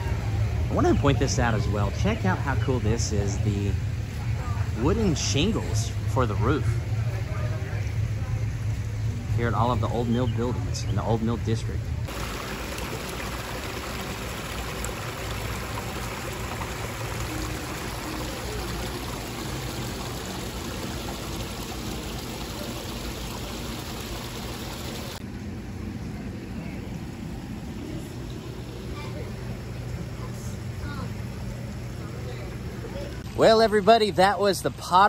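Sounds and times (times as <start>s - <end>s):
water splashing into pond: 12.1s - 25.2s.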